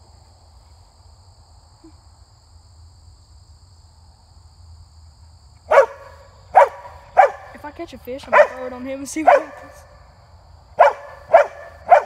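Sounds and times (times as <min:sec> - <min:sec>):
large dog barking: 0:05.7 - 0:07.6, 0:08.3 - 0:10.0, 0:10.8 - 0:12.0.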